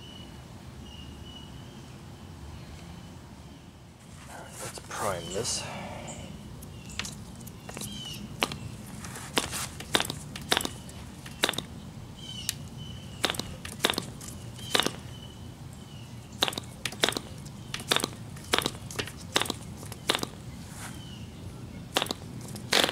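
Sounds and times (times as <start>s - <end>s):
propeller flicked by hand snapping: 6.9s - 11.7s, 12.5s - 15.1s, 16.4s - 20.4s, 22.0s - 22.9s.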